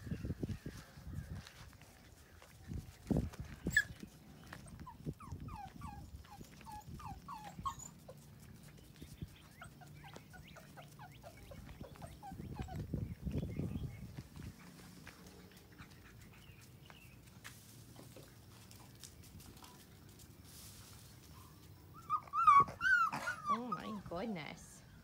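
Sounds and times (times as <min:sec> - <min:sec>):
puppy whimpering: 0:04.8 - 0:08.0, 0:22.0 - 0:24.1.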